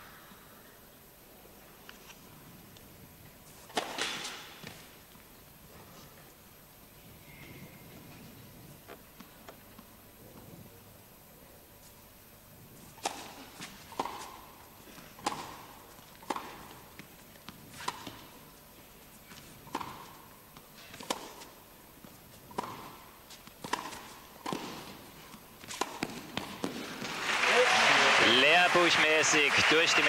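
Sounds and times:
racket hitting tennis ball: 3.6 - 4.9, 12.9 - 18.5, 19.6 - 21.6, 22.4 - 27.2
tennis ball bouncing on court: 13.0 - 14.6, 15.2 - 18.3, 19.6 - 21.6, 22.4 - 27.2.

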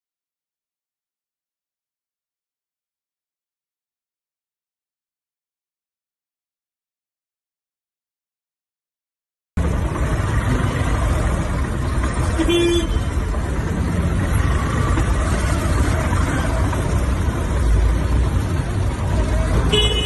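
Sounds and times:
traffic noise: 9.6 - 20.0
wind and engine rumble: 9.6 - 20.0.

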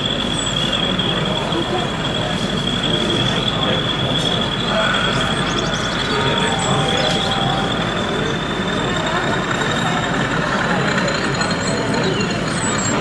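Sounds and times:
model train whine: 0.0 - 13.0
hall background hum: 1.2 - 10.4.

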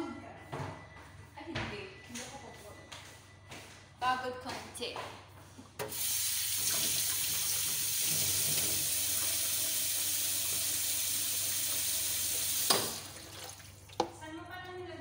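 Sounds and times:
water running into a sink: 5.9 - 14.2.

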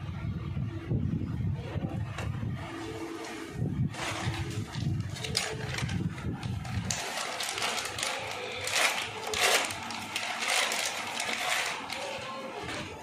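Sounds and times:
plastic packaging crinkling: 2.8 - 13.0.

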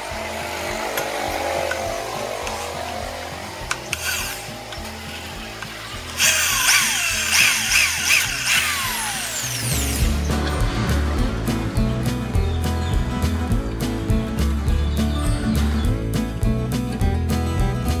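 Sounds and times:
background music: 0.0 - 18.0
electric drill boring through steel: 0.2 - 10.2.

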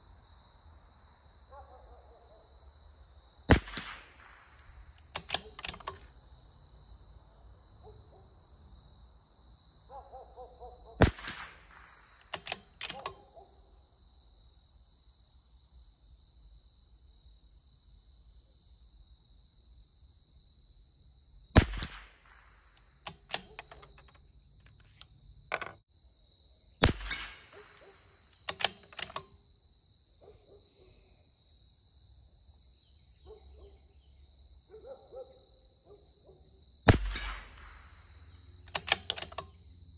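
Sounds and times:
rifle shots: 3.5 - 6.1, 11.0 - 13.2, 21.6 - 24.1, 26.8 - 29.3, 36.9 - 39.5
metallic clicks of rifle bolt: 3.5 - 6.2, 11.1 - 13.3, 21.6 - 25.8, 26.8 - 29.4, 36.9 - 38.0, 38.6 - 39.7.

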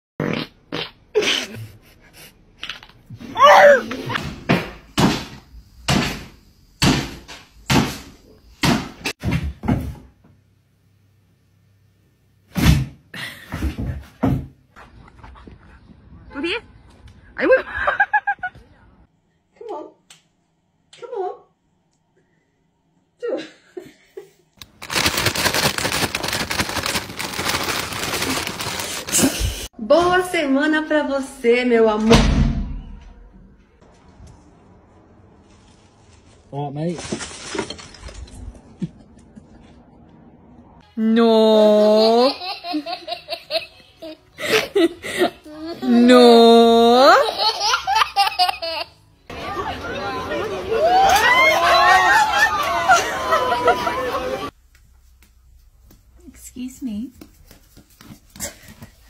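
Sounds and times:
dog yelping: 3.3 - 4.1
crisp packet crinkling: 24.6 - 29.6, 36.0 - 38.4.

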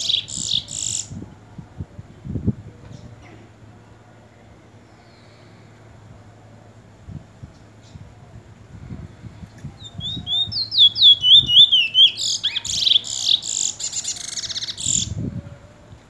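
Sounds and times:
finch singing: 0.0 - 1.2, 9.7 - 15.2.

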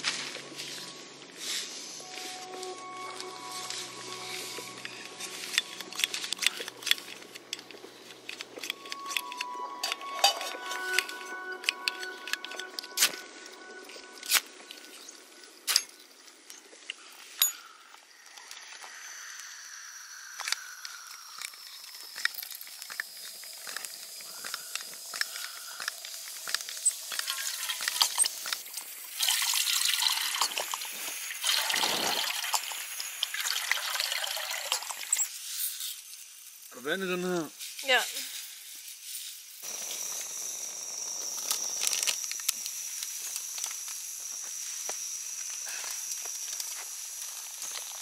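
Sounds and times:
priming flame hissing and crackling: 18.0 - 34.5, 35.2 - 48.0
water pouring into metal pot: 26.9 - 35.3.

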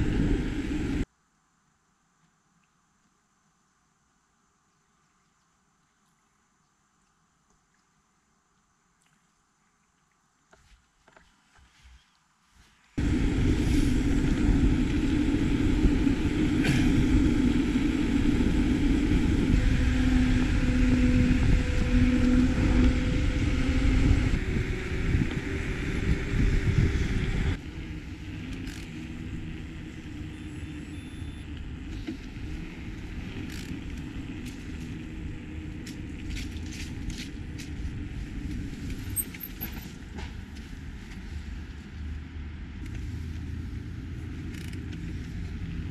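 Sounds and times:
wind rushing over microphone: 0.0 - 1.0, 13.0 - 30.3
outdoor background: 0.0 - 45.9
bike tyres rolling on asphalt: 10.5 - 45.9.

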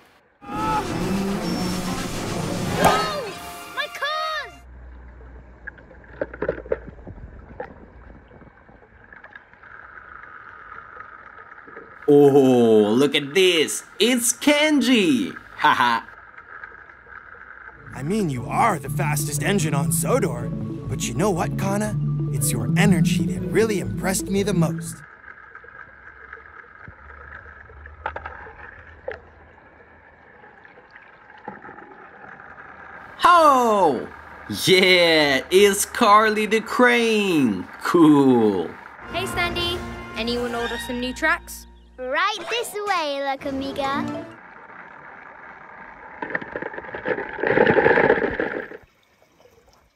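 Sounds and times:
water sloshing and dripping: 4.7 - 12.1, 25.0 - 33.2, 42.3 - 49.9
light water splashes: 44.4 - 49.9.

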